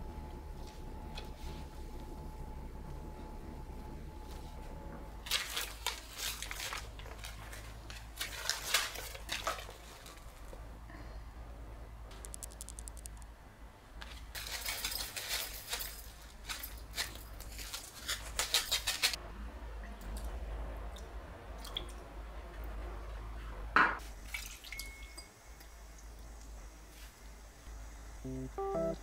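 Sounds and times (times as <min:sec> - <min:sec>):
plastic packaging crinkling: 0:05.2 - 0:10.4.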